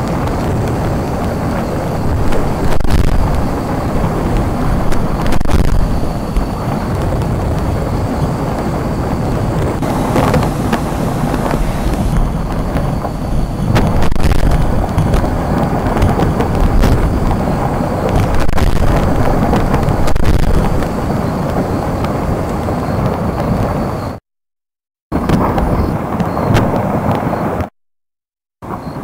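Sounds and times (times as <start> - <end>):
sharp cracks of rockfalls: 0.0 - 7.8, 9.8 - 22.2
volcano deep rumble: 0.0 - 24.2, 25.1 - 27.7.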